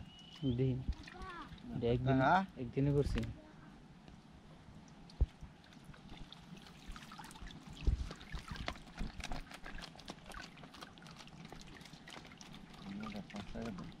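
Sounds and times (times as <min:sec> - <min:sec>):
small splashes: 0:00.0 - 0:01.9, 0:04.8 - 0:14.0
water trickling and dripping: 0:00.0 - 0:03.4, 0:04.0 - 0:14.0.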